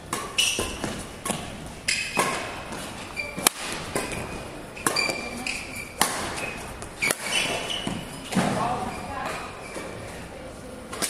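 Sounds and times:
racket striking shuttlecock: 0.0s - 8.6s
shoes squeaking on court floor: 0.0s - 10.3s.

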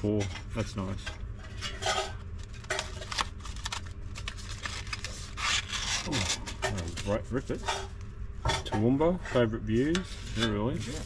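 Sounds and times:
paper and cardboard rustling: 2.4s - 7.8s, 9.8s - 11.0s.

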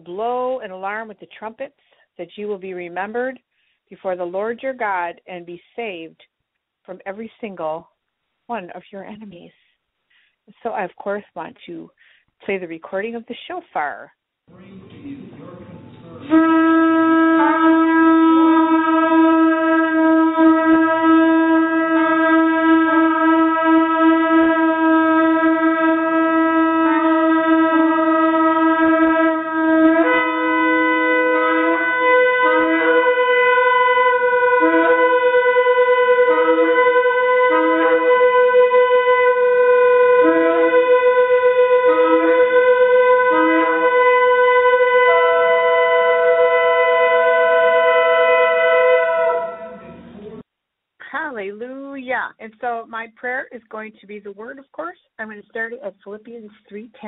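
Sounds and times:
ram's horn blasts: 16.2s - 50.4s.

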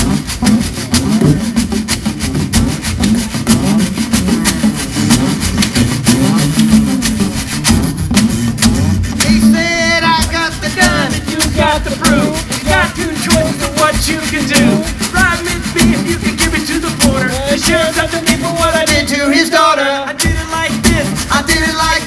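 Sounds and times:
acoustic guitars strumming: 0.0s - 22.0s
washboard scraping rhythm: 0.0s - 22.0s
wavering lead melody: 0.3s - 15.9s.

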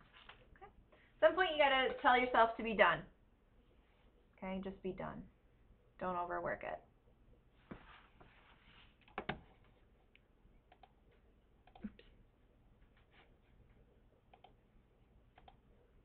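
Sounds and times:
computer mouse clicks: 10.7s - 11.0s, 11.6s - 12.1s, 14.3s - 14.6s, 15.3s - 15.6s.

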